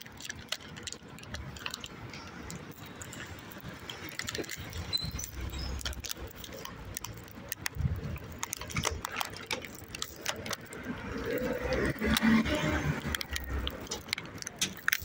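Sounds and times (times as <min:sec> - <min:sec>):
phone handling clicks and rustles: 0:00.0 - 0:15.0.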